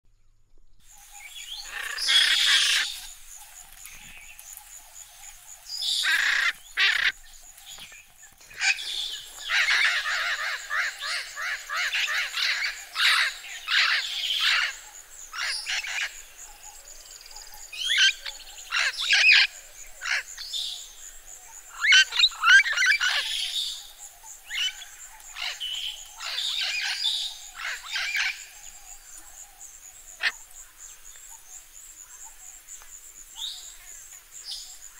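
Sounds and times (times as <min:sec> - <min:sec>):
parrots squawking: 0:01.6 - 0:02.9, 0:06.0 - 0:07.2, 0:08.6 - 0:14.7, 0:21.7 - 0:23.2.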